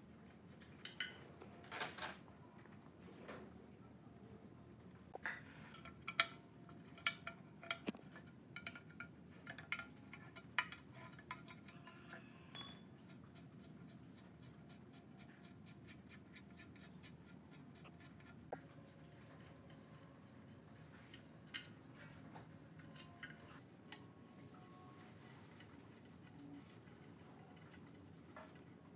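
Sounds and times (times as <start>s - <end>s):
metal clinks and knocks: 5.7s - 13.2s.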